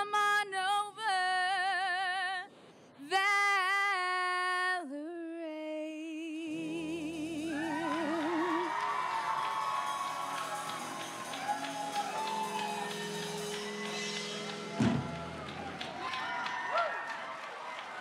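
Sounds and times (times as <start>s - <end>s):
woman singing with vibrato: 0.0s - 9.2s
live rock band playing: 10.5s - 15.6s.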